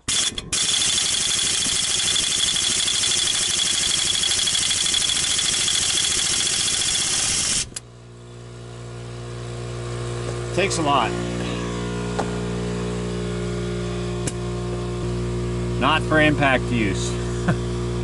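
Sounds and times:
impact wrench hammering: 0.0 - 7.8.

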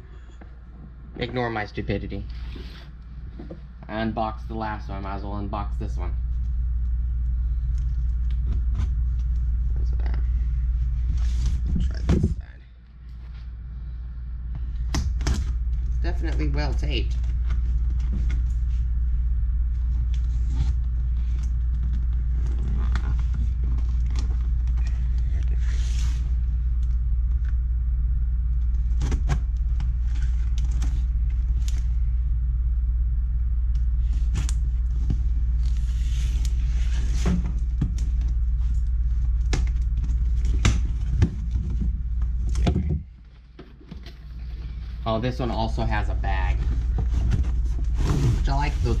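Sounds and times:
steady low rumble: 0.0 - 49.0
cardboard flaps scraping and knocking: 34.1 - 38.2, 46.6 - 49.0.

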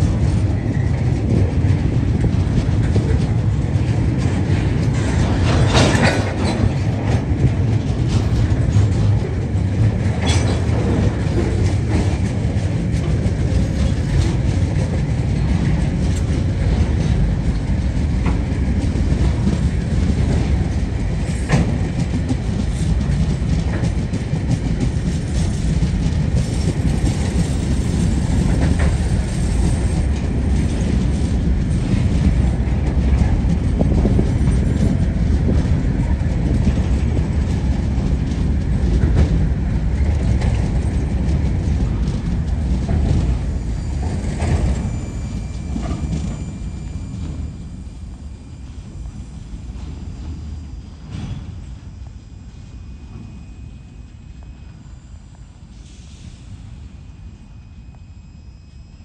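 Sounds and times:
wheels rumbling on rail: 0.0 - 59.0.

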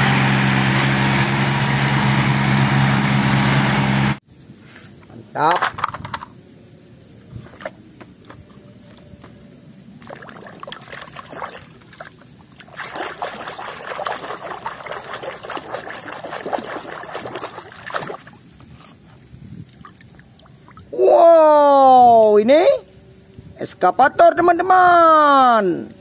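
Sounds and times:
hand splashing water in basin: 10.0 - 18.4.

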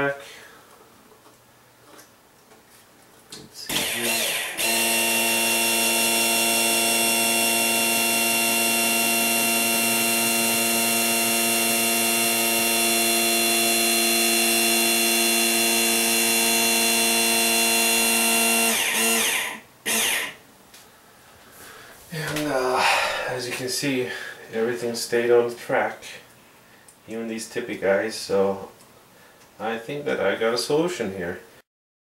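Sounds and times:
electric motor whining: 3.7 - 20.4.

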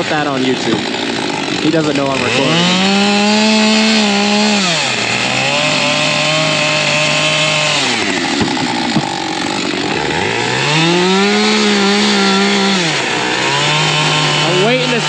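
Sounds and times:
chainsaw cutting: 0.0 - 15.0
sharp knocks: 0.6 - 1.0, 7.8 - 12.1.

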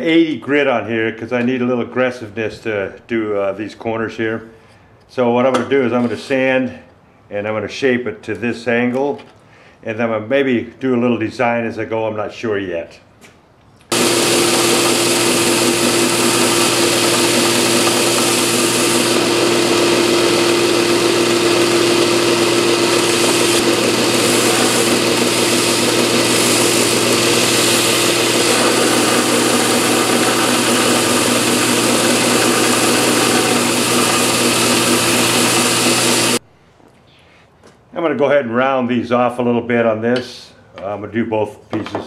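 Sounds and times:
belt sander motor hum: 13.9 - 36.4
sanding belt rasping on wood: 13.9 - 36.4.

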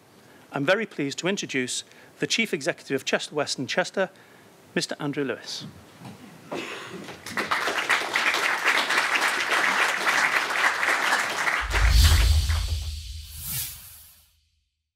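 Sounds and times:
audience applauding: 7.1 - 12.7
deep bass sound: 11.6 - 13.5
swooshes: 11.6 - 14.4.

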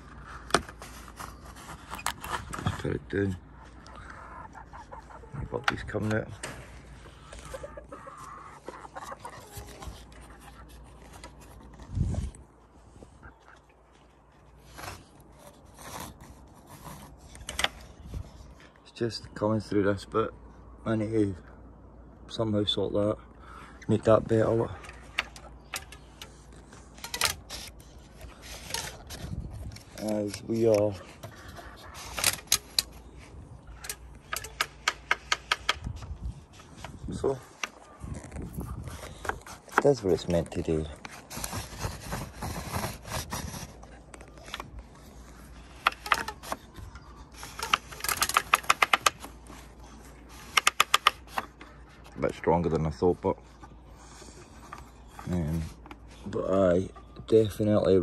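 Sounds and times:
wood rubbing and scraping: 0.0 - 18.8, 23.9 - 58.0
wooden ratchet clicking: 33.8 - 35.8, 47.4 - 49.3, 50.4 - 51.4.

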